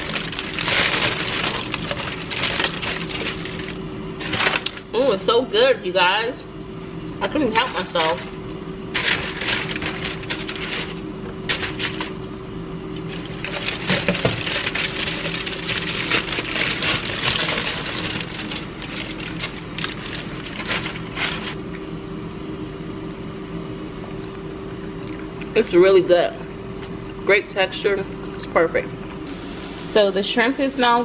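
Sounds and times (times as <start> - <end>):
foil crinkling: 0.0 - 4.8, 7.6 - 12.2, 13.0 - 21.6, 29.3 - 31.0.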